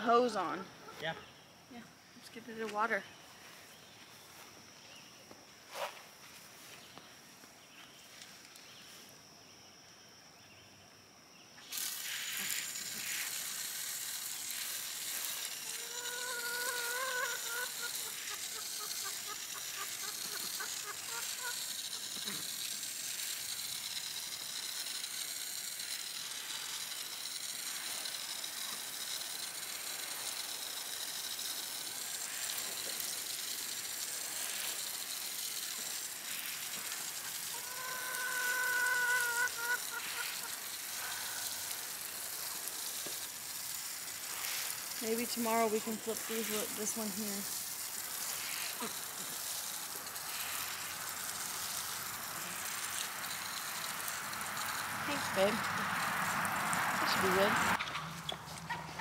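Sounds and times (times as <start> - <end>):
water spraying onto soil: 11.6 - 57.8
bird calling: 15.8 - 22.4, 37.5 - 40.6.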